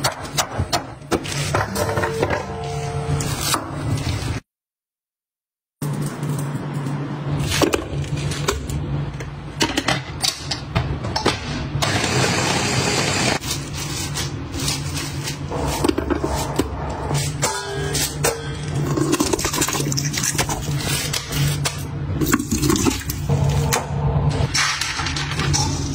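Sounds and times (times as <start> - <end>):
meat chopper motor humming: 11.8 - 13.4.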